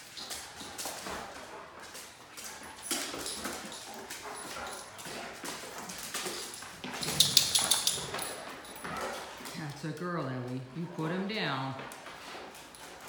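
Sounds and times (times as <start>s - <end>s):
dog claws clicking on tile: 0.0s - 9.6s
dog sounds: 0.0s - 13.0s.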